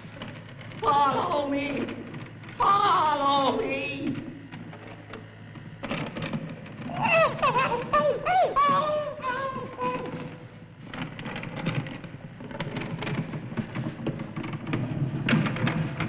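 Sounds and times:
creature squeaky chattering cry: 6.9 - 10.4.

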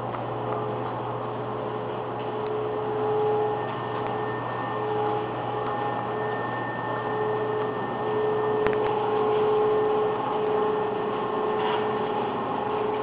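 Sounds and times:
refrigeration and ventilation hum: 0.0 - 13.0
held tones: 1.8 - 13.0.

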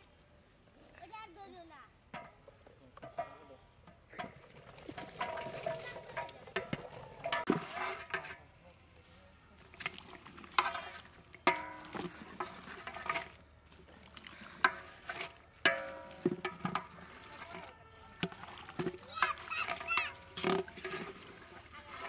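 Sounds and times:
metal ladle knocking on pot: 5.2 - 8.4, 11.4 - 12.1, 15.6 - 17.6.

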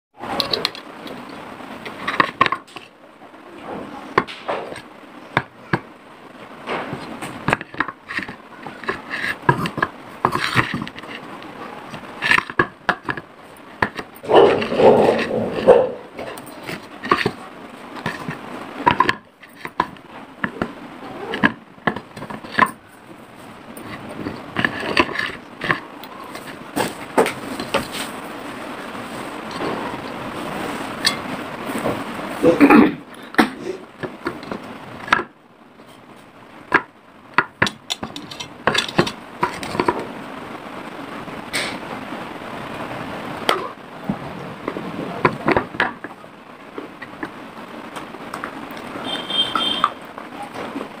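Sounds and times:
clay cups tapping on plate: 0.4 - 2.9, 4.1 - 5.9, 6.6 - 17.4, 18.0 - 22.9, 23.7 - 28.0, 33.3 - 35.4, 36.7 - 40.0, 43.4 - 46.2, 48.4 - 50.0.

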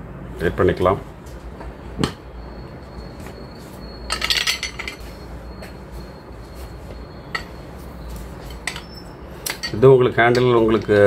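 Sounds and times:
clattering: 4.1 - 5.0
metal guard clinking and rattling: 4.1 - 5.0.

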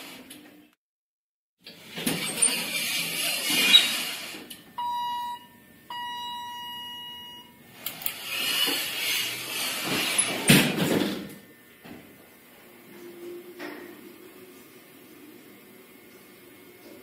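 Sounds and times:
electronic elevator beeps: 4.8 - 7.6
sliding door rushing noise: 7.9 - 11.2.

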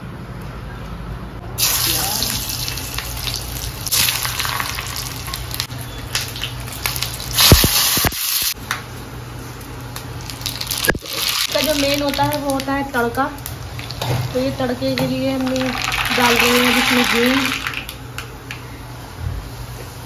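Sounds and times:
food sizzling in hot oil: 1.6 - 8.6, 10.1 - 14.4, 15.4 - 18.0.

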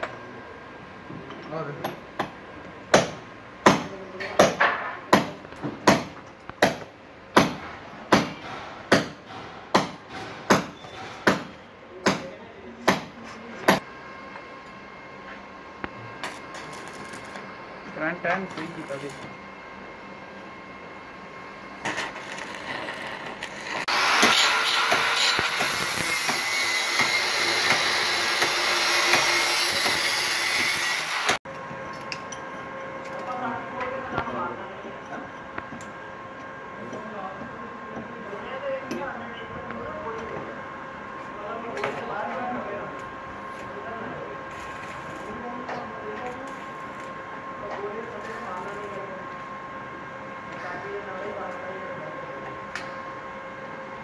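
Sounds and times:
angle grinder cutting steel: 22.1 - 31.4
hammer blows: 23.8 - 31.4.

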